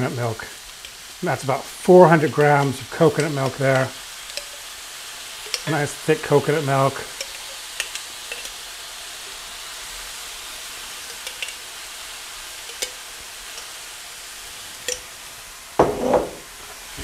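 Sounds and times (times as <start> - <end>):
vegetables sizzling in wok: 0.0 - 17.0
loud knock: 15.8 - 16.4.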